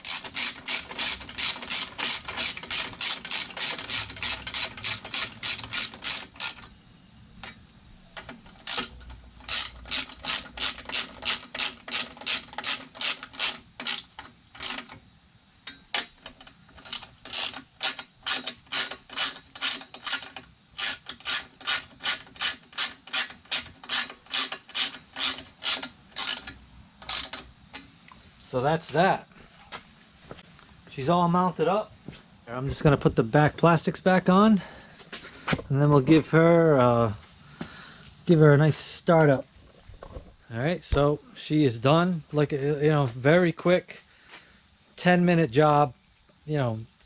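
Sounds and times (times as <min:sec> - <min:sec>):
ratchet wrench clicking: 0:00.0 - 0:06.7, 0:08.2 - 0:15.0, 0:15.7 - 0:27.8.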